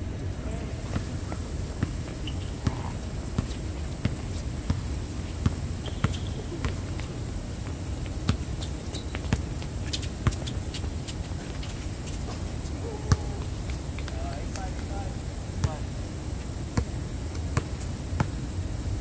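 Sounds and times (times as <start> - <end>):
low background hum: 0.0 - 19.0
basketball bouncing on hard court: 0.9 - 10.6, 13.0 - 14.2.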